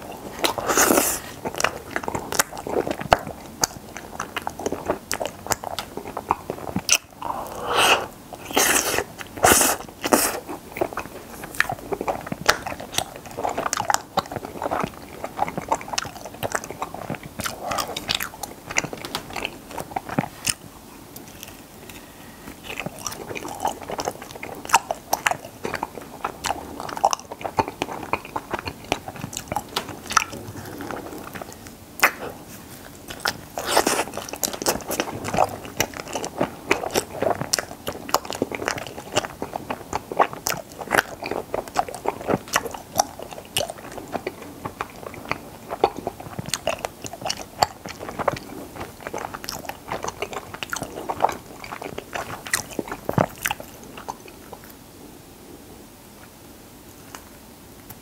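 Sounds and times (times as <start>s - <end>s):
chewing and crunching: 0.0s - 54.8s.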